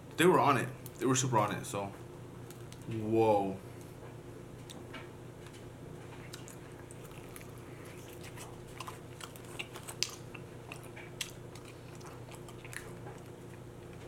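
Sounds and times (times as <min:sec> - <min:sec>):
low steady hum: 0:00.0 - 0:14.0
close chewing with wet mouth clicks: 0:06.1 - 0:14.0.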